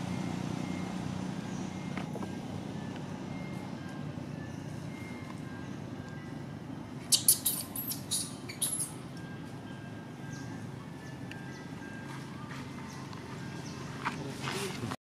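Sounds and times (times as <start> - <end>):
short high-pitched squeaks: 7.1 - 9.0.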